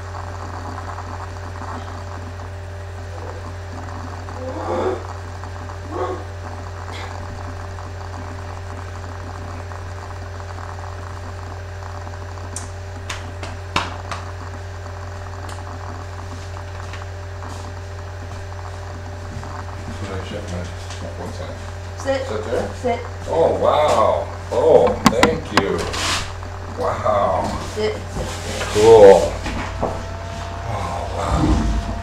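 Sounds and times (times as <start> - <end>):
computer low hum: 0.0 - 32.0
sharp clicks and knocks: 24.8 - 25.9.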